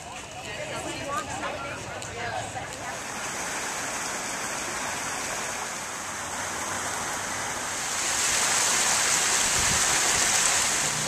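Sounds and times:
water churning in pool: 2.8s - 11.0s.

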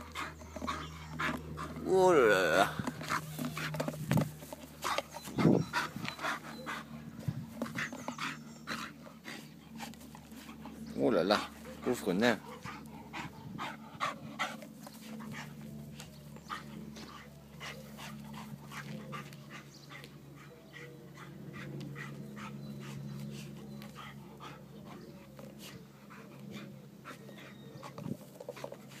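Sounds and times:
dog chewing a plastic toy: 2.8s - 5.4s.

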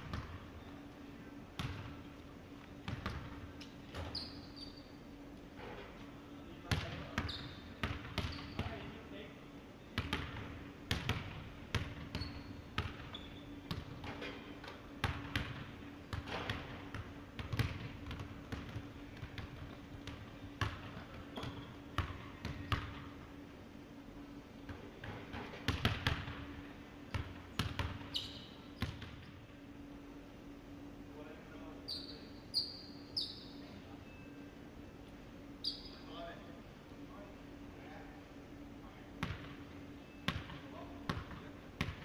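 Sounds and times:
basketballs bouncing on wooden floor: 1.6s - 1.9s, 6.7s - 8.8s, 10.0s - 13.1s, 13.7s - 23.1s, 25.0s - 26.4s, 27.1s - 28.2s, 28.8s - 29.2s, 39.2s - 39.6s, 40.3s - 42.0s.

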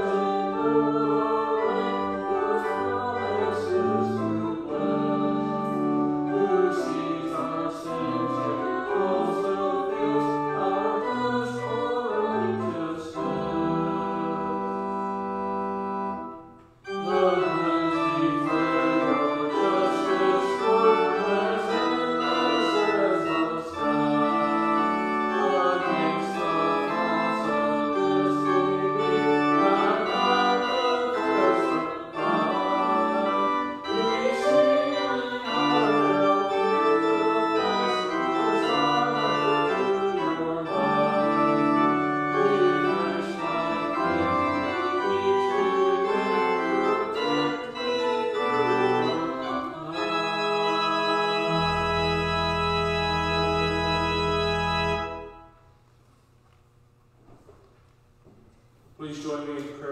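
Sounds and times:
church organ playing chords: 0.0s - 55.8s.

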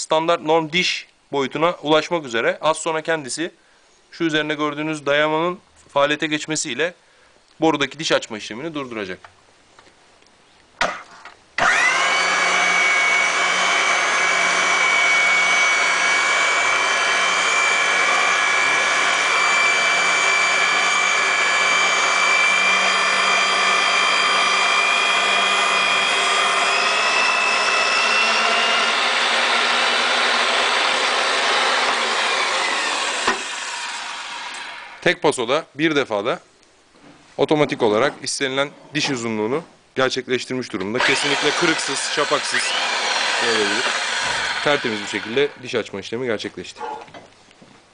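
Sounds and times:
pipe threading machine whining: 11.6s - 35.0s, 41.0s - 45.7s.

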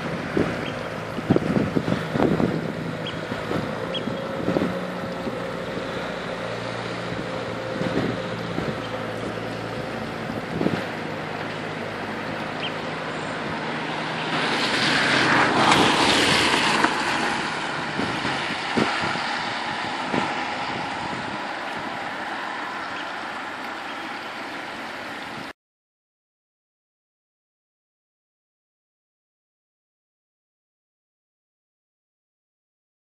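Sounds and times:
tractor diesel engine running: 0.0s - 15.8s
wind on microphone: 0.0s - 23.3s.

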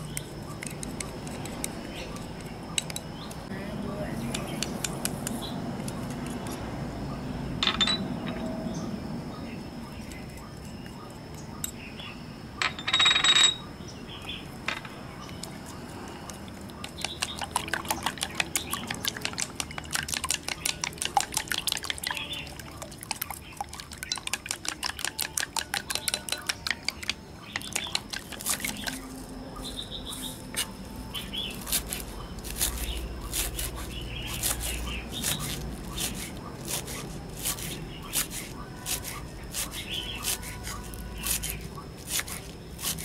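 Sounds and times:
chopsticks clicking on glass bowl: 24.1s - 29.0s.

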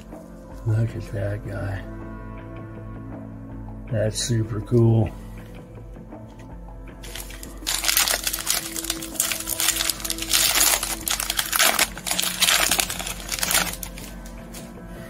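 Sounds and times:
wrapper crackling and tearing: 7.0s - 14.4s.

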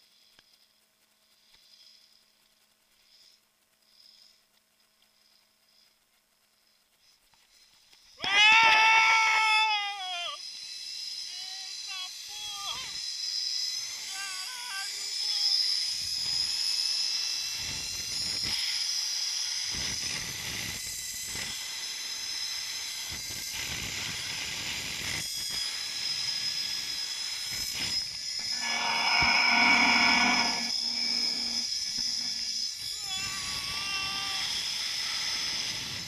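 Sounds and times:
zipline trolley whine on cable: 7.3s - 36.0s
loud held pitched sound: 28.3s - 33.4s.

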